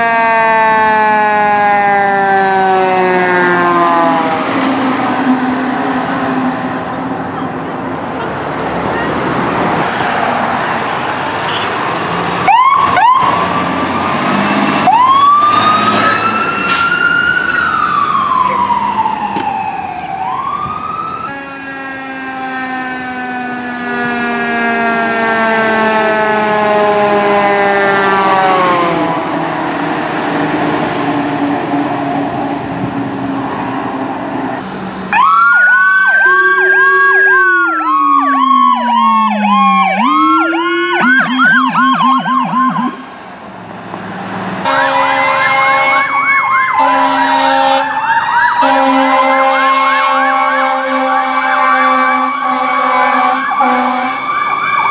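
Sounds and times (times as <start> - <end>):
electronic yelp siren: 0.0 - 7.5, 12.4 - 29.4, 35.1 - 43.2, 44.6 - 54.9
siren chirps: 0.0 - 7.5, 12.4 - 29.4, 35.1 - 43.2, 44.6 - 54.9
fire engine sirens wailing: 0.0 - 54.9
heavy truck engine noise: 1.4 - 48.0.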